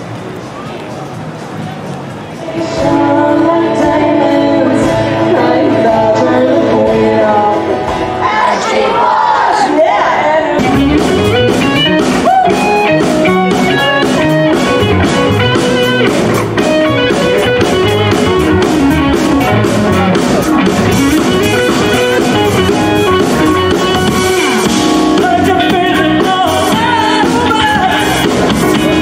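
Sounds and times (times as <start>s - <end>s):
electric guitars: 0.0s - 8.4s, 10.5s - 29.0s
drum kit beat: 10.6s - 29.0s.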